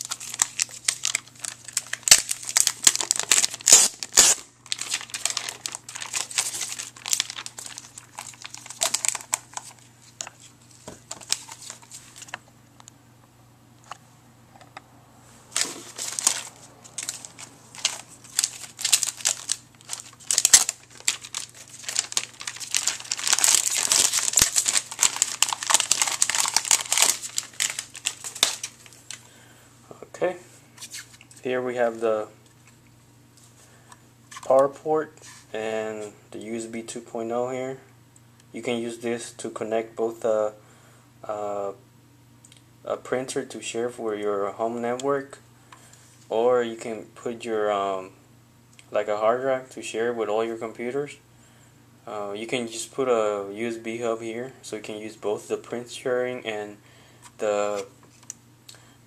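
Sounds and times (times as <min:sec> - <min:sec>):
plastic film peeling and crinkling: 0:00.0 - 0:12.4, 0:15.5 - 0:29.2.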